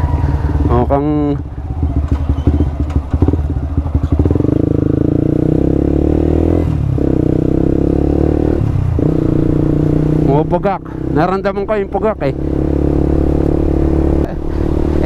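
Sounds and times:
motorcycle engine sputtering: 0:00.0 - 0:05.8.

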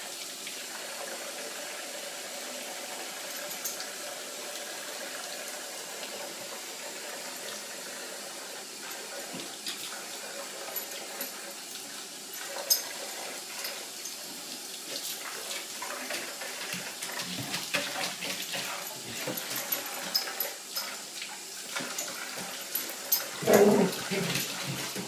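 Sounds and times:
puppy whining: 0:23.4 - 0:24.7.

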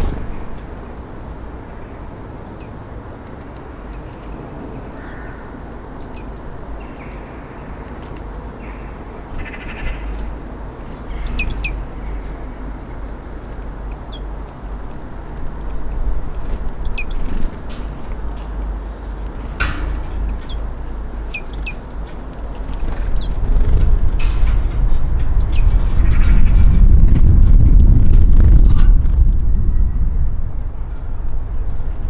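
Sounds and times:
steady low rumble: 0:00.0 - 0:04.8, 0:08.4 - 0:32.0
songbirds chirping: 0:00.0 - 0:26.8.

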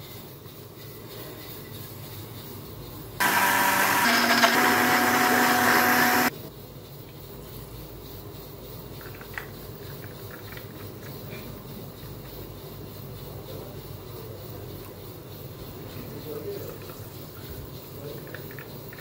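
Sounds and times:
blender motor running: 0:03.2 - 0:06.3.

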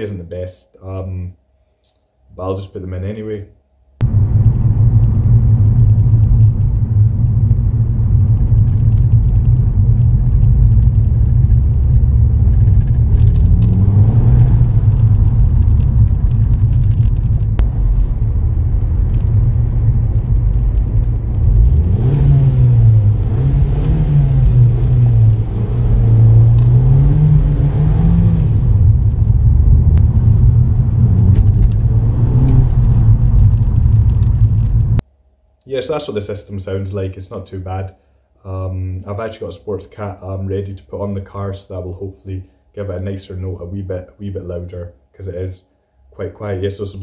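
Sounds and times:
car engine drone from inside: 0:04.0 - 0:35.0.

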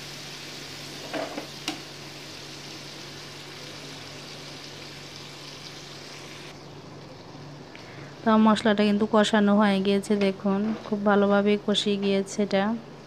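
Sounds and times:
spice paste sizzling in a pan: 0:00.0 - 0:06.5.

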